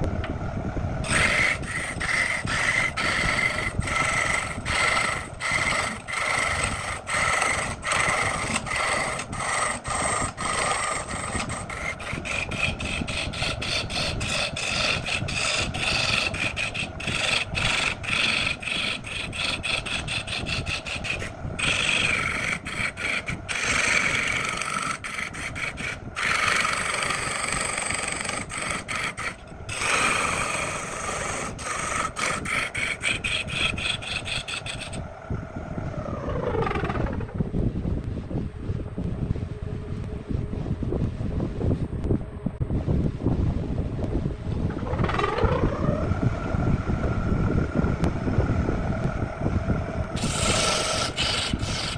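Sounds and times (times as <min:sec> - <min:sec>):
chisel cutting on wood lathe: 0:01.0 - 0:35.0, 0:50.2 - 0:51.9.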